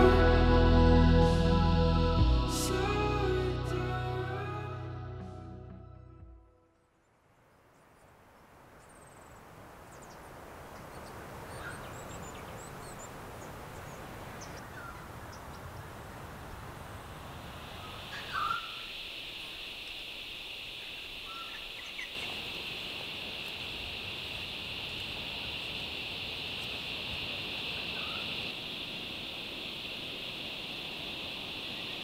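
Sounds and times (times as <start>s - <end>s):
steady background hiss: 7.4s - 32.0s
high insect drone: 17.0s - 32.0s.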